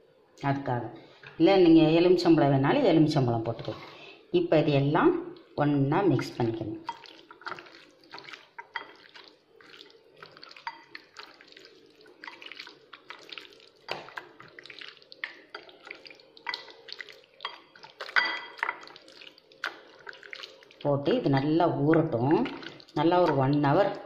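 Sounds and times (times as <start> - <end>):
wet squelches of hand mixing: 5.9 - 24.0.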